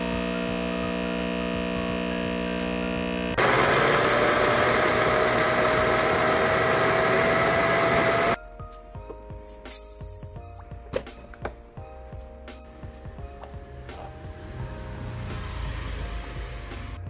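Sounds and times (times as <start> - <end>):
blender hum: 0.0 - 8.4, 14.9 - 17.0
blender motor grinding: 0.0 - 8.4.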